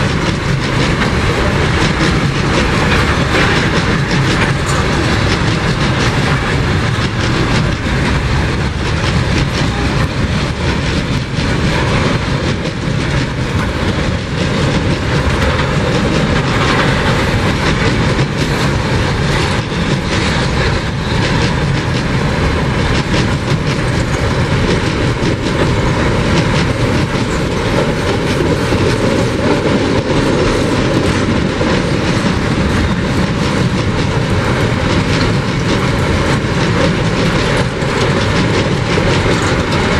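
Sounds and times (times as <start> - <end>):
train wheels clacking over rail joints: 0.0 - 39.9.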